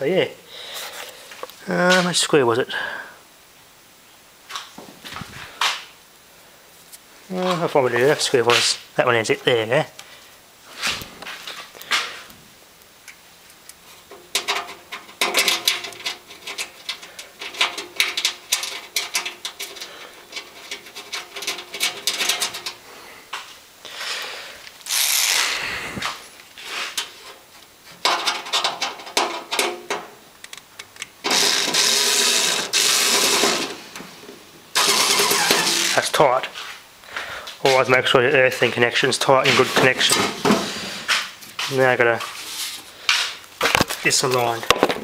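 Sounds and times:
metal clicks and clatter: 14.1 - 22.8, 28.0 - 33.8.

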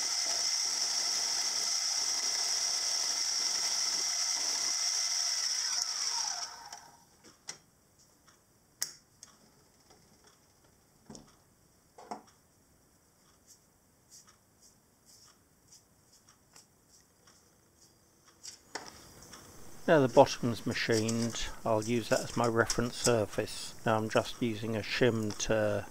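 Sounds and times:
milling machine motor whine: 0.0 - 7.0.

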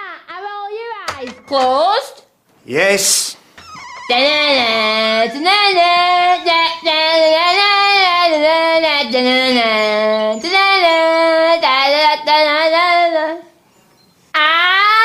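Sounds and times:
high voice singing with vibrato: 3.6 - 13.5.

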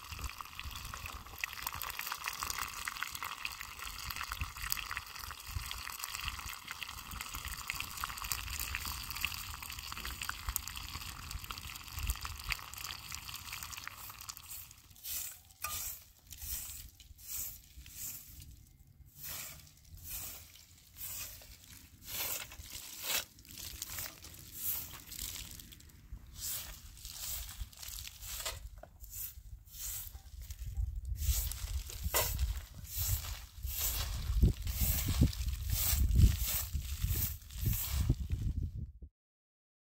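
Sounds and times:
broom sweeping dirt ground: 14.0 - 38.6.

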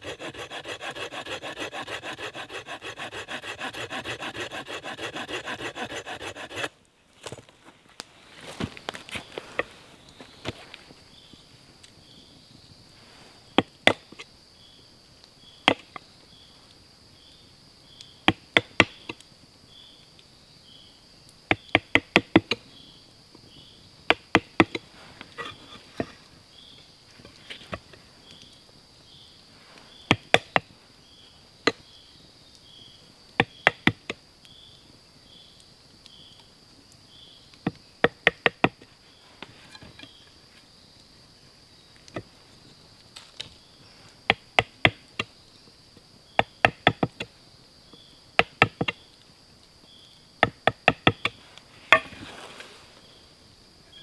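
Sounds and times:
hammer tapping wood chisel: 0.0 - 6.7, 46.4 - 47.3, 48.4 - 49.0, 50.4 - 52.1
insect chirping: 0.0 - 54.0.

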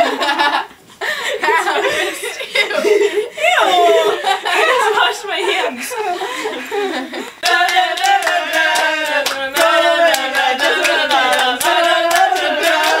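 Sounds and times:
pop song with singing: 3.6 - 13.0.

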